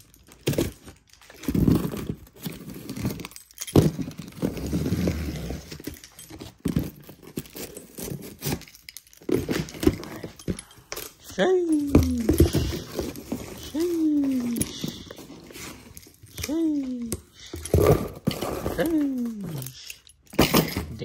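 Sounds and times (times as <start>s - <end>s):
keys jangling: 5.3s - 21.0s.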